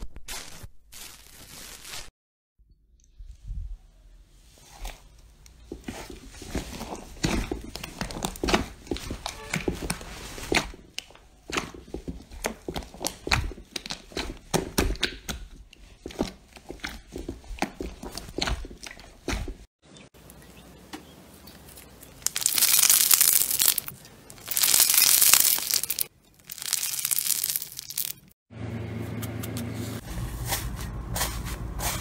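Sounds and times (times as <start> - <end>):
slime crackling and popping: 22.2 - 28.3.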